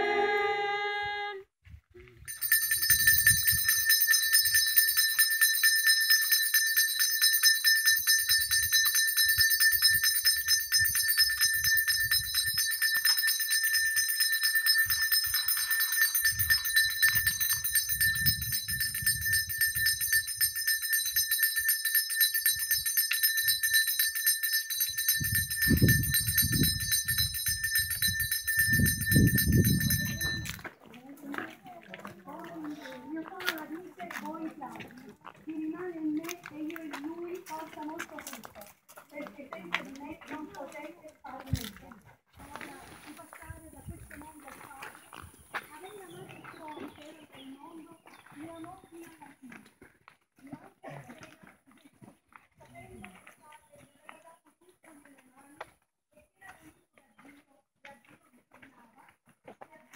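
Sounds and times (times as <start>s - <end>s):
bell jingling rapidly: 2.3s - 30.6s.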